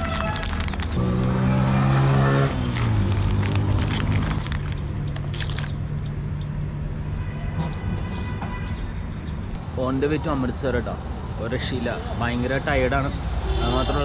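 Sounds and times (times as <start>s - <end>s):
vehicle engine passing by: 0.9s - 4.5s.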